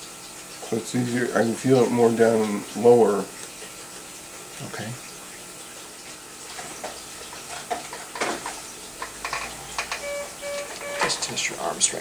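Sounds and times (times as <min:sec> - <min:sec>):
short electronic beeps: 0:10.0 - 0:11.3.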